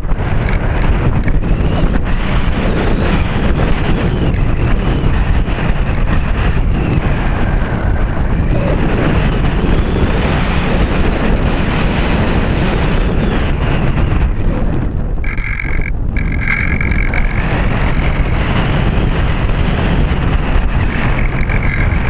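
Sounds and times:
faint whine varying in pitch: 0.0s - 22.0s
loud wind noise on microphone: 0.0s - 22.0s.

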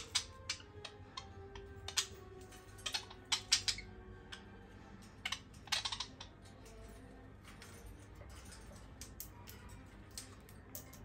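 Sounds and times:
budgerigars squabbling: 0.0s - 6.5s.

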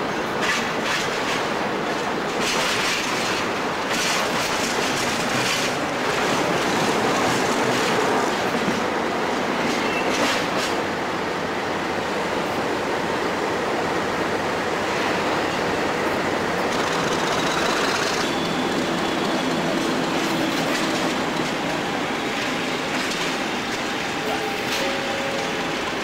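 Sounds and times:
diesel locomotive engine: 0.0s - 26.0s.

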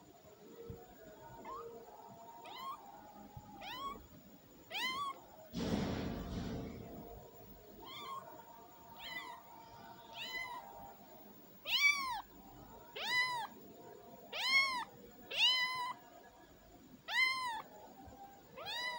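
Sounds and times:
kitten mewing: 3.6s - 4.0s, 4.7s - 5.2s, 7.8s - 8.2s, 11.7s - 12.2s, 13.0s - 13.5s, 14.3s - 16.0s, 17.1s - 17.6s, 18.6s - 18.9s.

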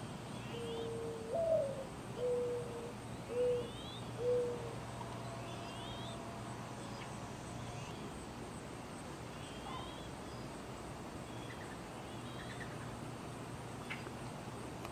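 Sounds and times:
small birds chirping: 2.2s - 8.4s, 11.2s - 13.0s.

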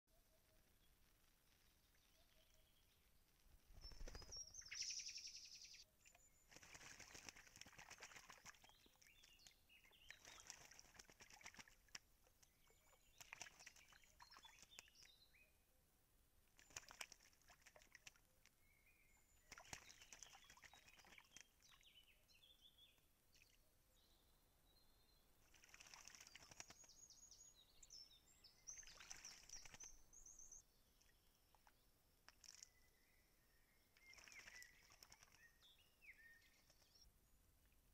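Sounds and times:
birds splashing and fluttering: 3.6s - 5.1s, 6.0s - 15.2s, 16.5s - 18.3s, 19.3s - 22.0s, 25.4s - 27.0s, 28.6s - 30.2s, 32.3s - 32.8s, 33.9s - 37.0s.

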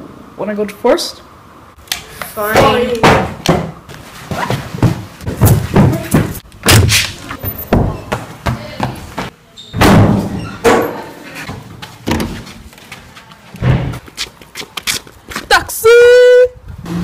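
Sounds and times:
doors banging and slamming: 2.5s - 3.8s, 4.5s - 12.4s, 13.6s - 14.0s.

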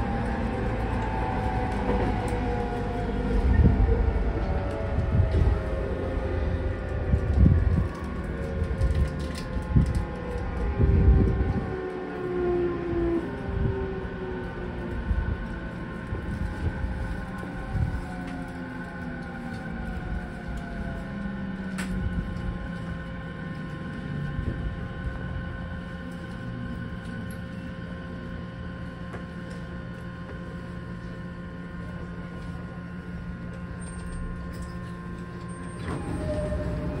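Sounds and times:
electric train inverter whine: 0.0s - 37.0s
steady multi-tone hum: 0.0s - 37.0s
train doors opening: 0.1s - 10.4s, 33.6s - 37.0s.

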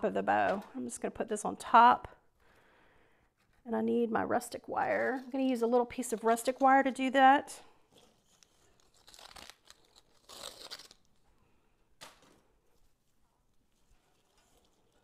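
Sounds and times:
paper-wrapped wire rustling: 7.9s - 15.0s.

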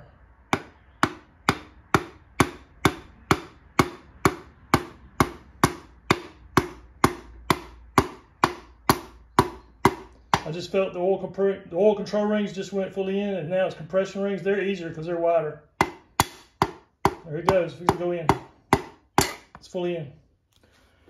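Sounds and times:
hammer handle knocking on piston: 0.5s - 10.5s, 15.8s - 19.6s.

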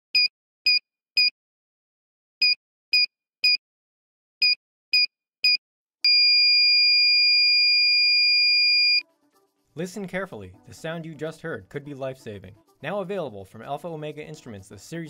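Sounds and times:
alarm beeping and steady tone: 4.4s - 9.0s.

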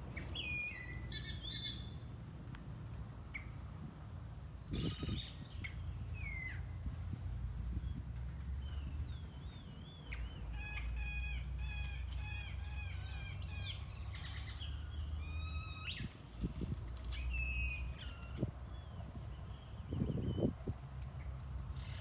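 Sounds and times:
birds calling: 0.0s - 2.1s, 4.6s - 6.8s, 7.7s - 16.2s.

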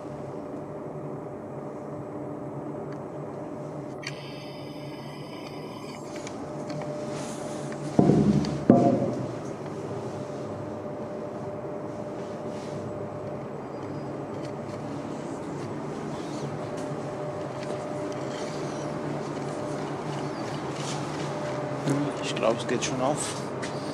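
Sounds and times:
low hum of machinery: 0.0s - 23.9s
faint held tone: 4.0s - 6.1s.

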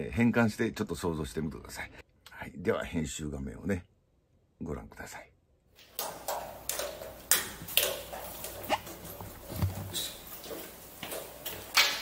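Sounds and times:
footsteps clicks and knocks: 5.8s - 12.0s.

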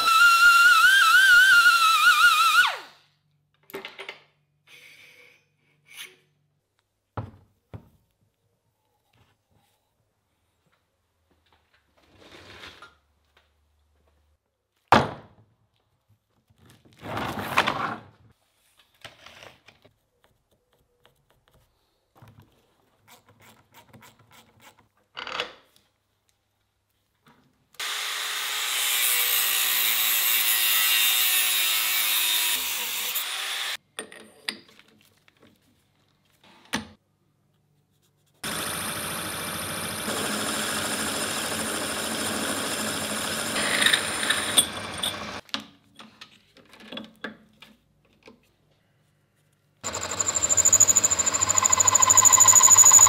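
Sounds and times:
noisy power tool: 27.8s - 33.8s, 38.4s - 45.4s, 49.8s - 53.0s
metal lathe running: 38.5s - 45.4s, 49.8s - 53.0s.

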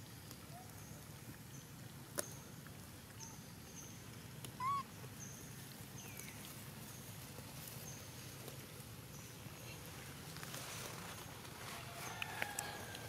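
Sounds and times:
rising and falling animal call: 4.6s - 4.9s.

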